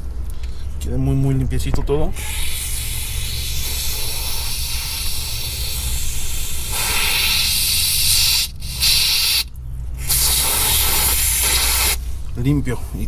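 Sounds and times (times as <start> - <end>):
aerosol spray can hissing: 2.2 - 12.0.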